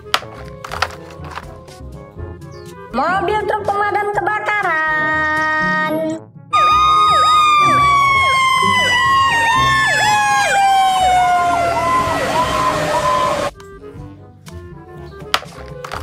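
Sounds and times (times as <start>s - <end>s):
siren wailing: 6.5s - 13.5s
yelping siren: 6.5s - 13.5s.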